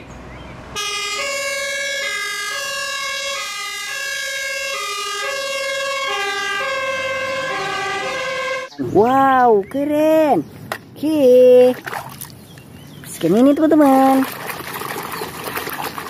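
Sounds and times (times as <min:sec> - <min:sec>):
fire engine two-tone siren: 0:00.7 - 0:08.7.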